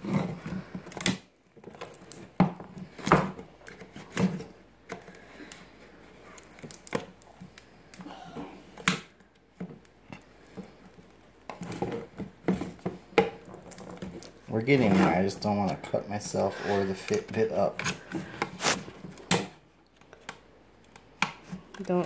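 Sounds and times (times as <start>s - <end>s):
plastic packaging clicks and crackles: 0.8s - 5.7s, 6.3s - 8.0s, 8.8s - 14.5s.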